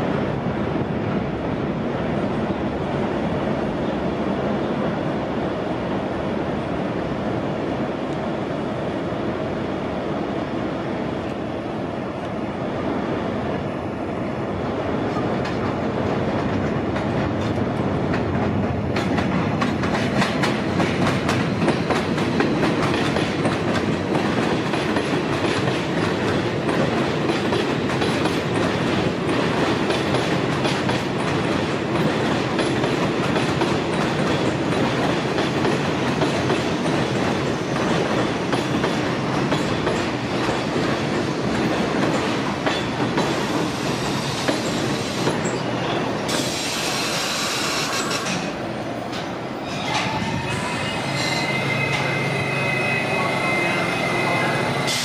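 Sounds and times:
subway train rumble: 0.0 - 55.0
steel wheels clattering over rail joints: 15.1 - 52.1.

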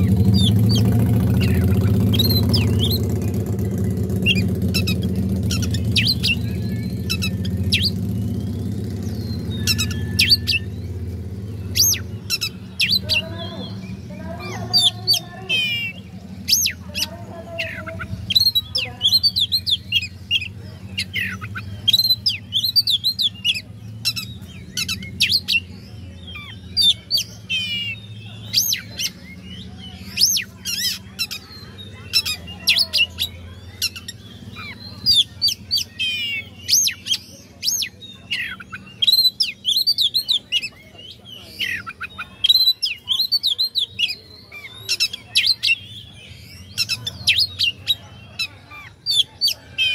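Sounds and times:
bird singing whistles and trills: 0.0 - 49.9.

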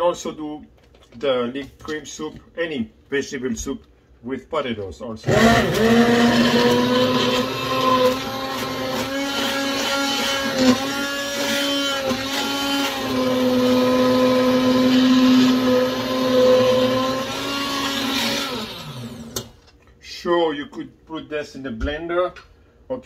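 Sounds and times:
immersion blender whining: 5.2 - 19.5.

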